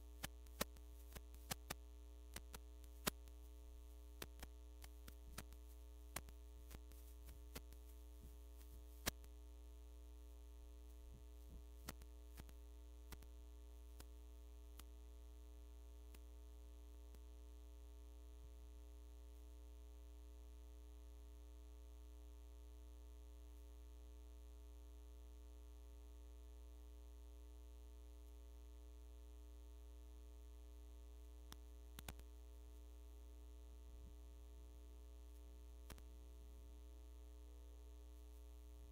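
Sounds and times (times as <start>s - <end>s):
electrical mains hum: 0.0s - 38.9s
faint clicks: 0.2s - 3.4s, 31.5s - 32.3s.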